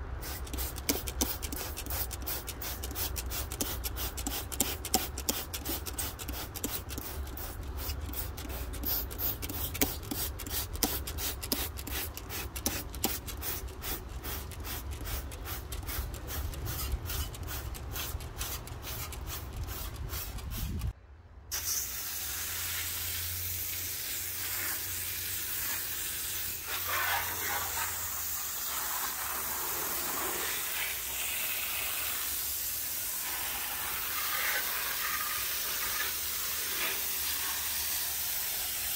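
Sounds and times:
spray hissing: 0.2 - 20.9, 21.5 - 38.9
rapid ticking: 0.5 - 20.9.

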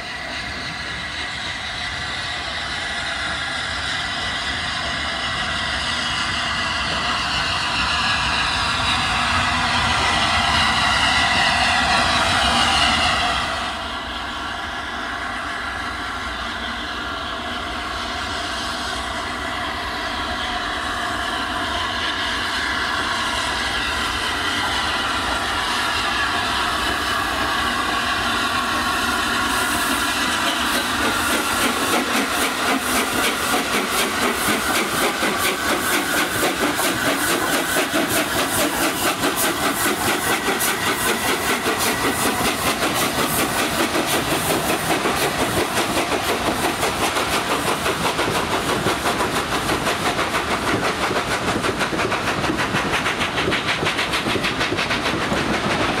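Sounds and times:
train rumble: 0.0 - 56.0
train wheels clattering: 21.8 - 56.0.

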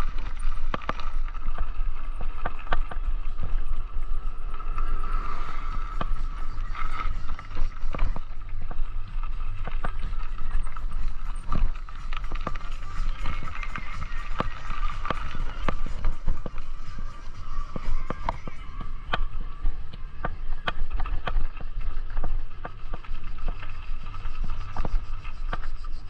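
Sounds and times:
bicycle knocks and rattles: 0.0 - 4.3
thin whine: 0.0 - 26.0
wind and road rumble: 0.0 - 26.0.

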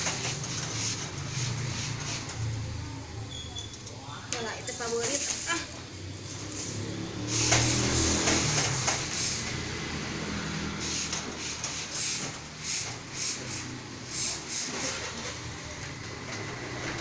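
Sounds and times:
steam iron hissing: 0.0 - 2.6, 6.3 - 15.2.

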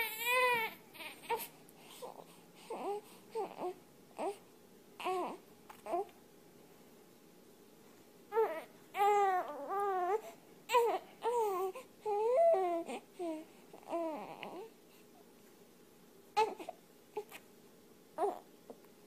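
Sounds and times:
baby crying: 0.0 - 1.5, 5.0 - 6.1, 8.3 - 14.7, 16.4 - 17.4.

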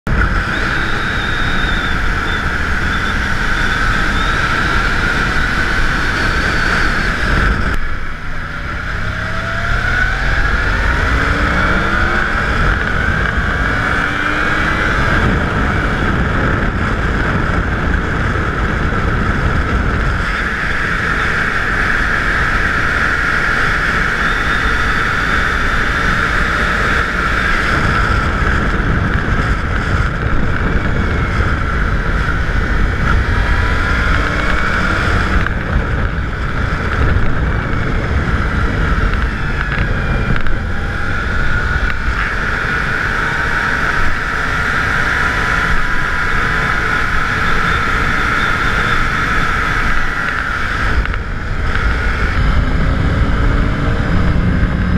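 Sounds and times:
motorcycle engine running: 0.0 - 54.9
road noise: 0.0 - 54.9
high steady whine: 0.1 - 54.9.

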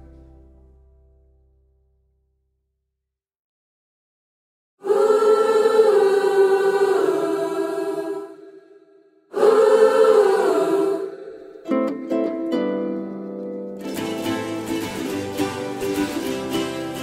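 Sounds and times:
choral singing: 4.8 - 13.0, 13.9 - 17.0.

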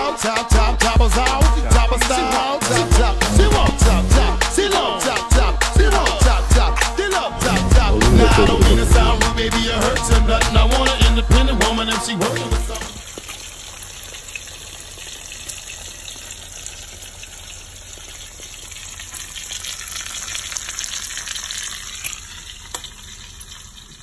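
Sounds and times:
omelet sizzling in a frying pan: 13.0 - 24.0.

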